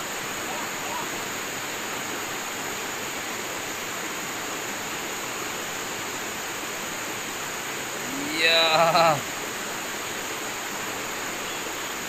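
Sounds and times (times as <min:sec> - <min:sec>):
river rapids rushing: 0:05.7 - 0:12.0.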